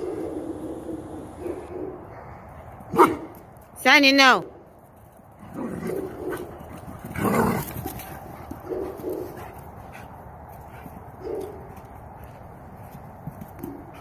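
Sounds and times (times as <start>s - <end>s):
dogs grumbling in play: 5.4s - 9.5s.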